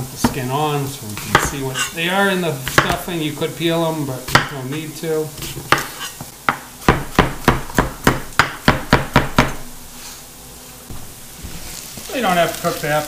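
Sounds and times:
knife chopping on plastic board: 0:01.3 - 0:01.6, 0:02.7 - 0:03.1, 0:04.3 - 0:04.5, 0:05.4 - 0:09.7.

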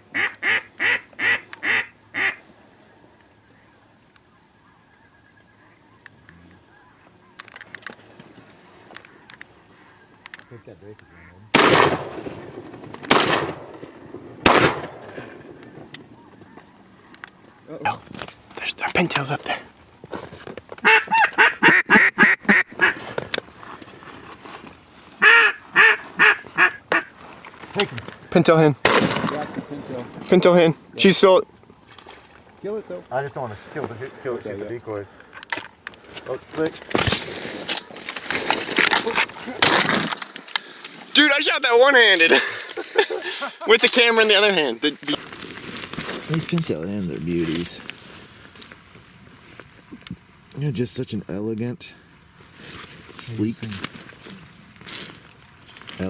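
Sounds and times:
duck call quacks: 0:00.1 - 0:02.4, 0:09.8 - 0:11.4, 0:20.8 - 0:23.0, 0:25.2 - 0:27.1.

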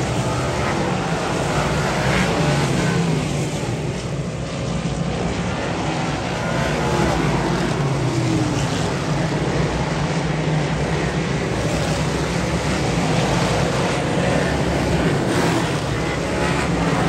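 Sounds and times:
race car engines droning: 0:00.0 - 0:17.0.

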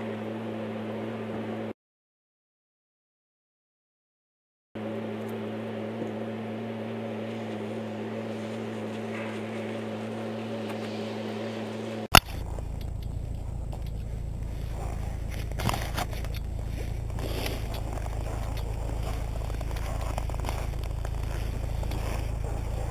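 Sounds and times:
steady droning hum: 0:00.0 - 0:01.7, 0:04.8 - 0:22.9
wheels rolling over snow: 0:04.8 - 0:22.9.

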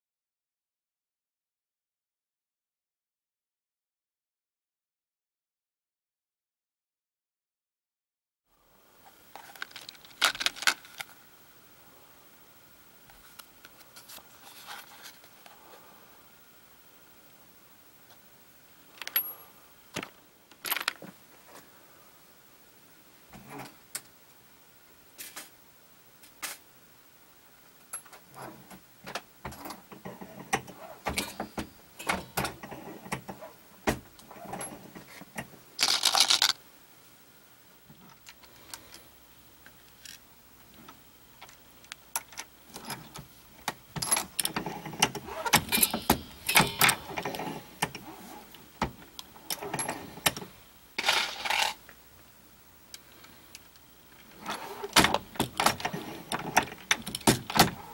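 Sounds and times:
metal cartridge cases clinking: 0:20.5 - 0:21.0, 0:35.8 - 0:36.6.

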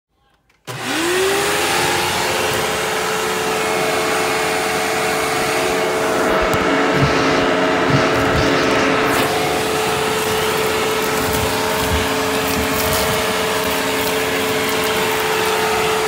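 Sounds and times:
vacuum cleaner motor whine: 0:00.6 - 0:16.0
low thumps: 0:06.1 - 0:15.2.

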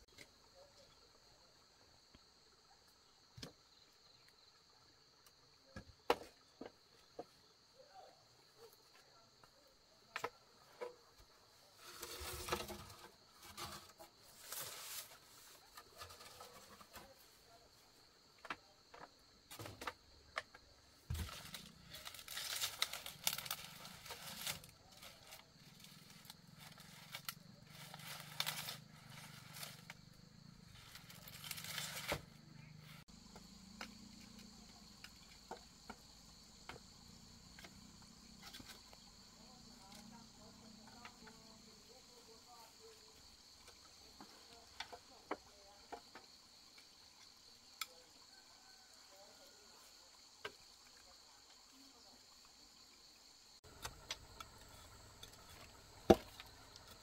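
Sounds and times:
insects chirring: 0:00.0 - 0:57.0
rustling and crackling: 0:11.7 - 0:17.3, 0:21.1 - 0:33.0.

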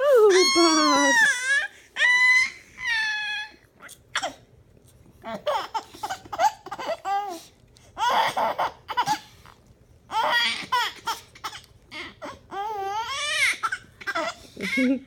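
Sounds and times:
baby squealing and crying: 0:00.2 - 0:04.4, 0:10.1 - 0:11.2, 0:11.9 - 0:14.8.

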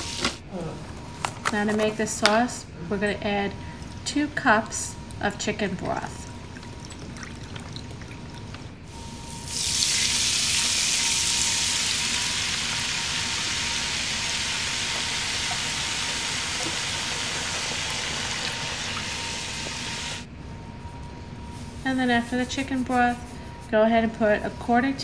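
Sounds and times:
liquid sizzling in hot pan: 0:09.2 - 0:20.2.

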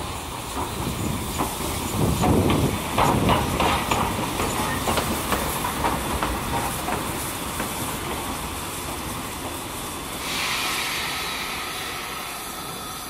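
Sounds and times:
train wheels clacking over rail joints: 0:00.0 - 0:09.7
steam hissing: 0:00.0 - 0:13.0.

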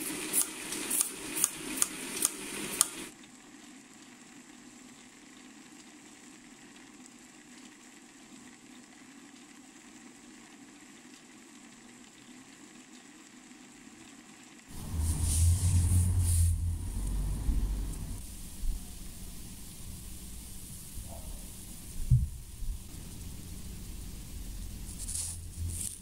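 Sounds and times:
faint low hum: 0:14.7 - 0:26.0
rice puffs rattling in drum: 0:14.7 - 0:26.0.

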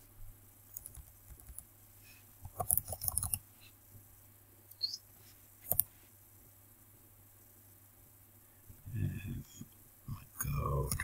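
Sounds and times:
typing on computer keyboard: 0:00.7 - 0:01.7, 0:02.4 - 0:03.4.

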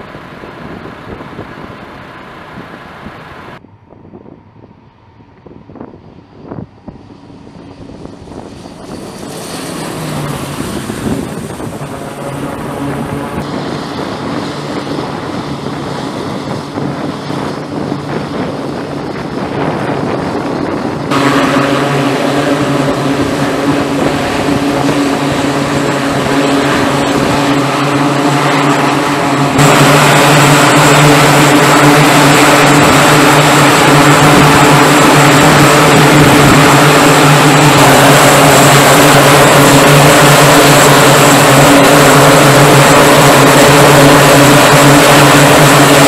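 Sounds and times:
turboprop engines droning: 0:00.0 - 0:46.0.

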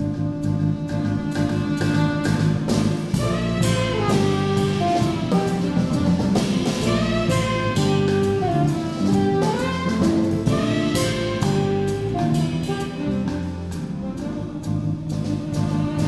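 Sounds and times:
bass: 0:00.0 - 0:16.0
drum kit with cymbals: 0:00.0 - 0:16.0
piano: 0:00.0 - 0:16.0
saxophone melody: 0:00.0 - 0:16.0.

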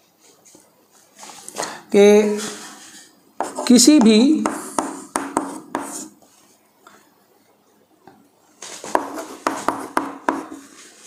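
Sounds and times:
chalk scratching on chalkboard: 0:03.4 - 0:06.2, 0:08.8 - 0:11.0.

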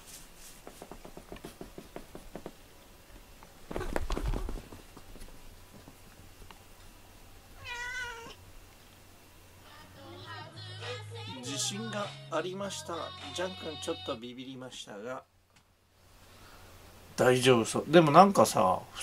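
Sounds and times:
cat meowing: 0:07.6 - 0:08.4.

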